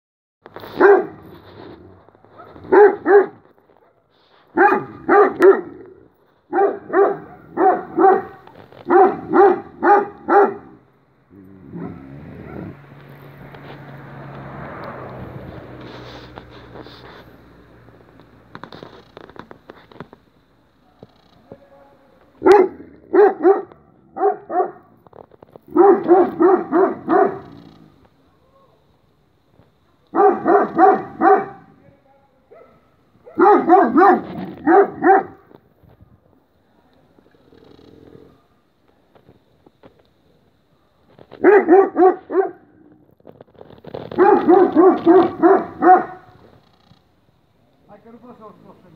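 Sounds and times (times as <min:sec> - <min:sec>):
dog barking: 0:00.8 - 0:01.3, 0:02.3 - 0:10.8, 0:11.6 - 0:12.8, 0:22.4 - 0:25.0, 0:25.7 - 0:27.6, 0:30.1 - 0:31.8, 0:32.5 - 0:35.4, 0:40.8 - 0:42.8, 0:44.1 - 0:46.4.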